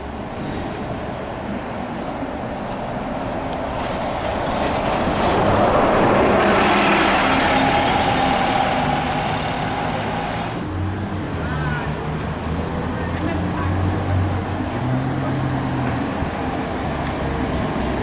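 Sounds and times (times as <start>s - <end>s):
bus driving past: 0.0s - 18.0s.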